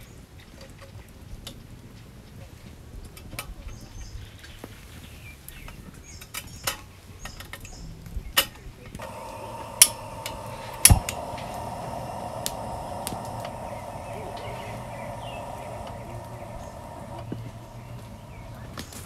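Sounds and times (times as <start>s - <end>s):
lighter clicks: 9.0s - 18.5s
campfire crackling: 9.0s - 19.0s
gas lantern hissing: 9.0s - 19.0s.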